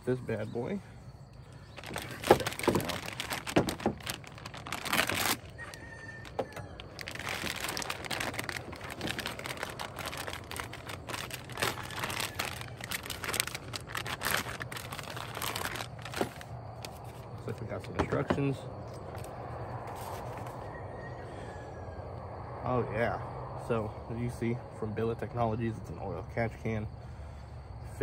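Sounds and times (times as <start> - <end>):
plastic bag crinkling: 1.6 - 17.2.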